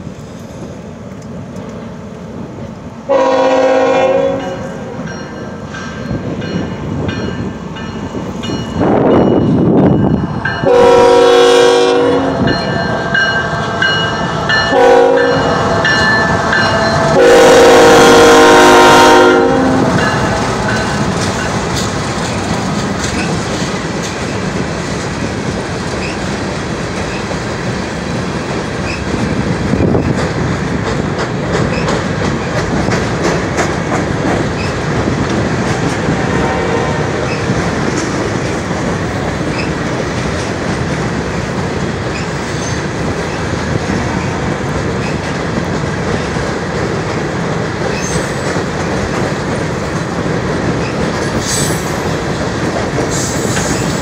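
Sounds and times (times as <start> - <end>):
train air horn blasts: 3.1 - 5.0, 10.6 - 12.8, 13.4 - 20.8, 36.1 - 37.3
train wheels clacking: 3.2 - 54.0.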